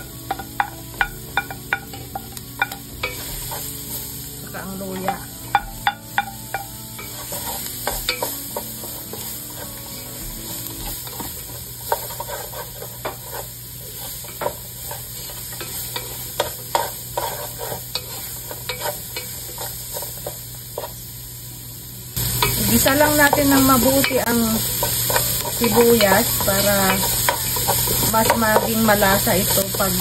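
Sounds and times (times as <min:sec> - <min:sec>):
food sizzling in oil: 0:00.0 - 0:30.0
wooden spatula scraping a pan: 0:07.1 - 0:20.9.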